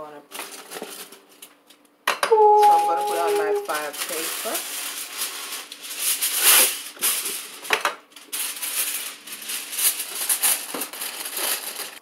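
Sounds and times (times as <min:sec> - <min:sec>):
aluminium foil crinkling: 0:00.3 - 0:01.8, 0:02.5 - 0:12.0
foil sharp crackle: 0:02.6 - 0:12.0.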